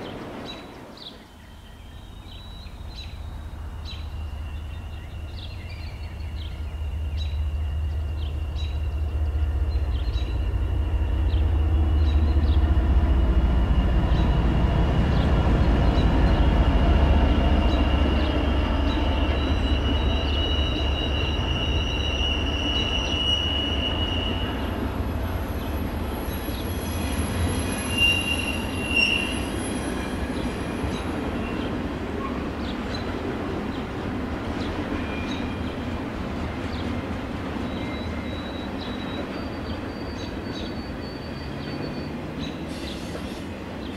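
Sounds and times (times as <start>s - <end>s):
model train rumbling: 2.0s - 43.9s
high-pitched wheel squeal: 19.4s - 24.7s, 26.6s - 30.3s
short loud squeaks: 27.7s - 29.5s.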